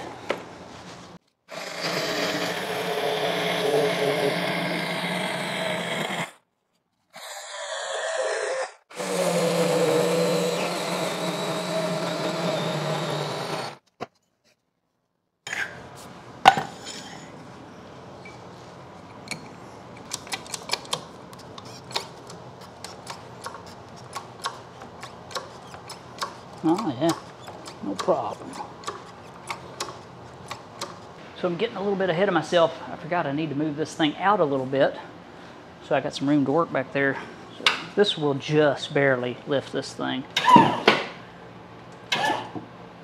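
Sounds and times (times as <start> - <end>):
chainsaw cutting wood: 1.5 - 6.4, 8.9 - 13.8.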